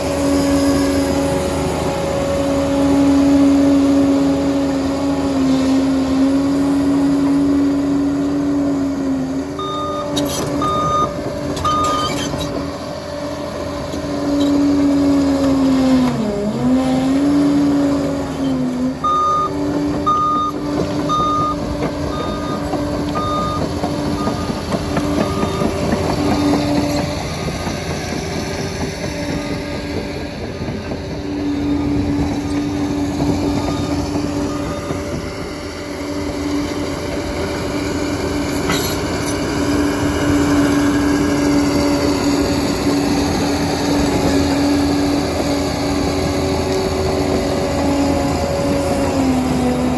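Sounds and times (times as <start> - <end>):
diesel engine running: 0.0 - 49.9
reversing alarm beeping: 9.5 - 12.5, 19.0 - 27.4, 31.6 - 36.8.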